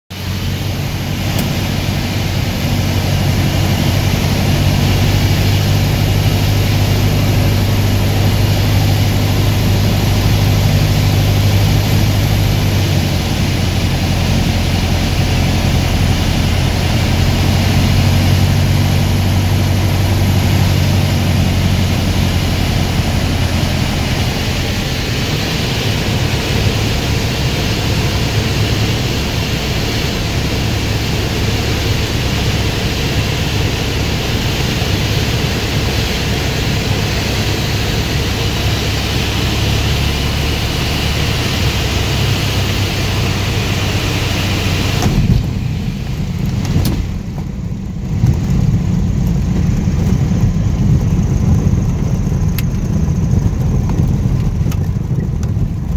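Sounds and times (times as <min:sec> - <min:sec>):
light aircraft engine drone: 0:00.1 - 0:55.9
rushing air noise: 0:00.1 - 0:55.9.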